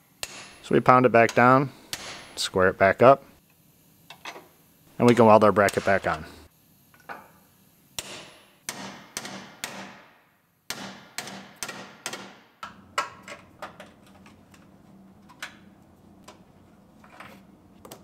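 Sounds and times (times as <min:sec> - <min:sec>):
hammer striking steel: 0:00.2 - 0:00.6, 0:08.0 - 0:12.5.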